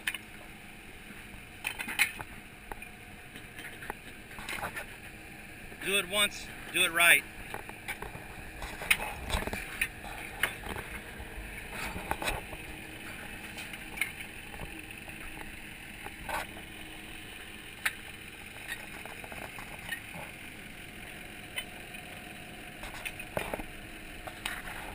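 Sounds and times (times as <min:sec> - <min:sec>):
steady outdoor hum: 0:00.0 - 0:24.9.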